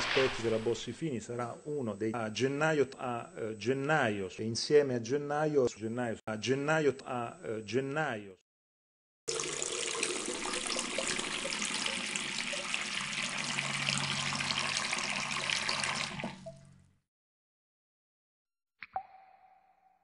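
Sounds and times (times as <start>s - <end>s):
water running from tap: 9.3s - 16.6s.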